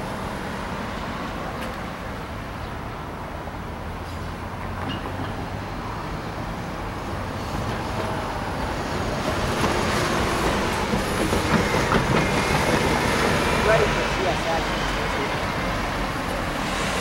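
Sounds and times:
freight train rumbling: 3.7s - 17.0s
wheels clicking over track joints: 9.6s - 13.9s.

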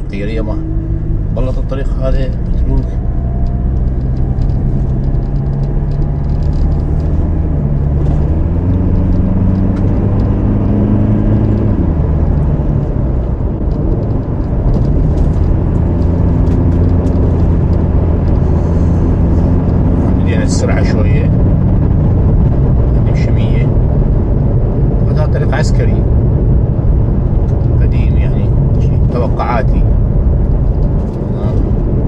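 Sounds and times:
car engine hum: 0.0s - 32.0s
tyre and road noise: 0.0s - 32.0s
light ticks and rattles: 1.8s - 10.5s, 11.2s - 23.7s.

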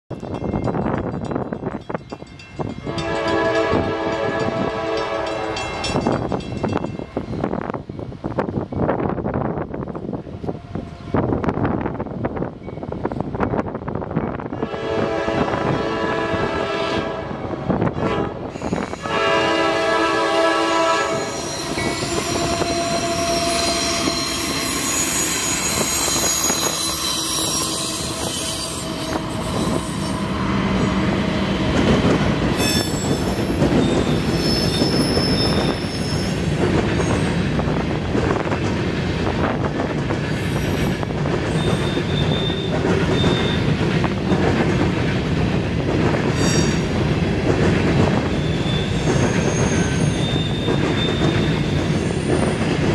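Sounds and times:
train horn: 2.8s - 6.0s, 14.5s - 25.1s, 25.7s - 31.4s
high wheel squeals: 21.1s - 31.3s, 32.6s - 37.4s, 41.5s - 43.8s, 48.3s - 52.8s
freight cars rumbling: 21.1s - 52.9s.

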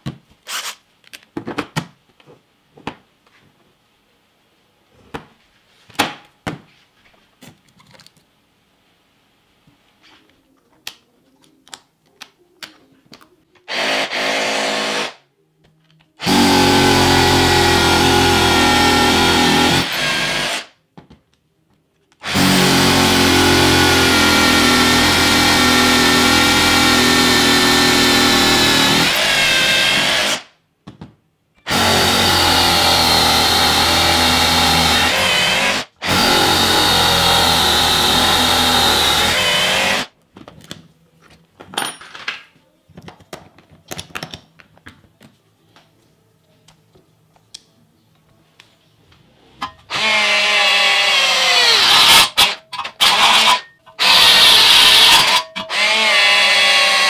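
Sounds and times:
hammer drill boring into concrete: 13.7s - 15.2s, 16.2s - 20.7s, 22.2s - 30.5s, 31.7s - 40.1s, 49.9s - 57.0s.

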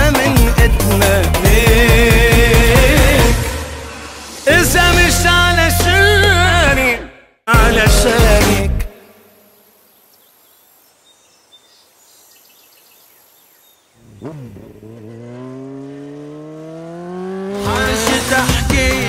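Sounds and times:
music with singing: 0.0s - 9.2s, 17.4s - 19.0s
bird chirps: 9.0s - 14.3s
engine accelerating: 14.0s - 19.0s.

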